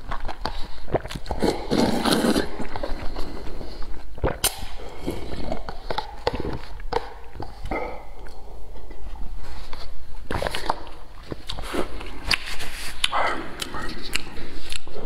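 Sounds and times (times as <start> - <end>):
person chewing: 0.0 - 15.0
person drinking from paper cup: 0.0 - 15.0
wet mouth clicks and smacks: 4.2 - 4.8.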